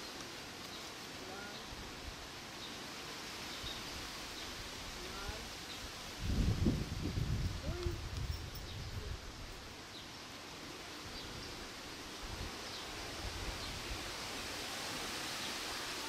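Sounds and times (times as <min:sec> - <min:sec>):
breeze rustling leaves: 0:00.0 - 0:16.0
wind buffeting microphone: 0:05.9 - 0:09.7.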